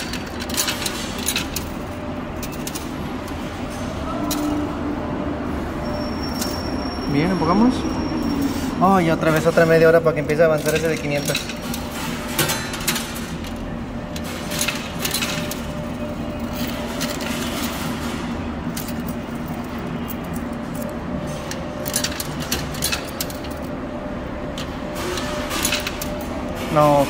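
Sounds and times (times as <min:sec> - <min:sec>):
steady machine hum: 0:00.0 - 0:27.0
coins clinking and sliding: 0:14.2 - 0:23.7.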